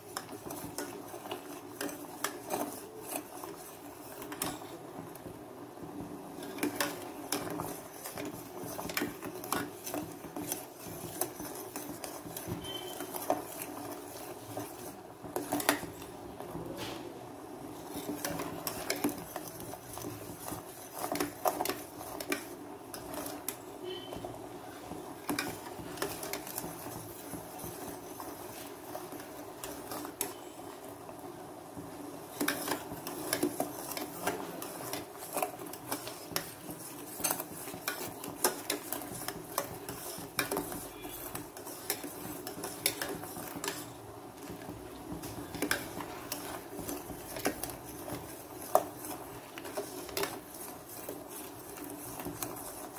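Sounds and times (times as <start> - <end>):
spoon scraping metal pan: 6.4 - 16.0, 32.3 - 44.0.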